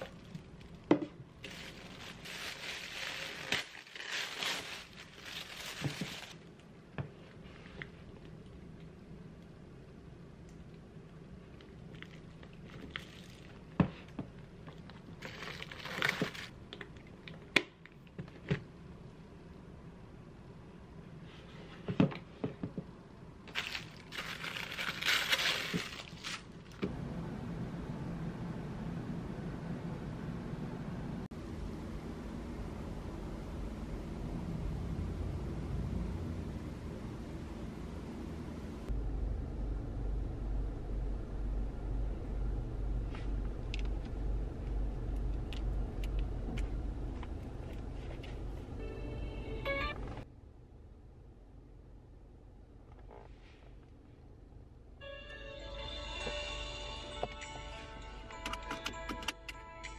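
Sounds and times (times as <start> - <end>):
steady low hum: 0.0 - 58.6
tissue paper crinkling: 1.4 - 6.5, 15.2 - 16.5, 23.5 - 26.7.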